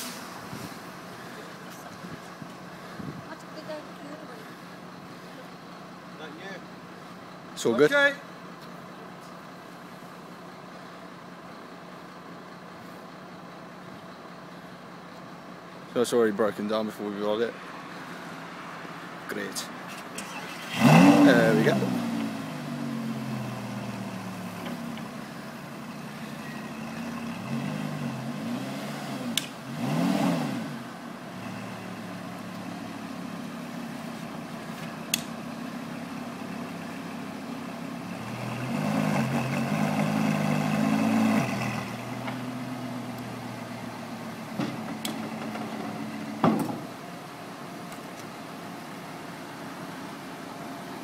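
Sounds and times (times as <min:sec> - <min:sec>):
car engine idling and revving: 0:00.0 - 0:51.0
sharp clicks: 0:35.1 - 0:35.4.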